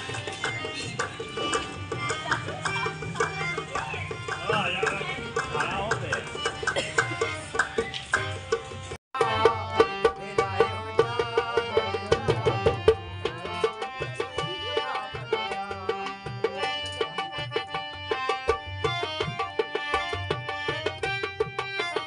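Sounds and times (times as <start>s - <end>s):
hand drum beating: 0.0s - 8.6s, 9.2s - 22.0s
harmonium melody: 0.0s - 22.0s.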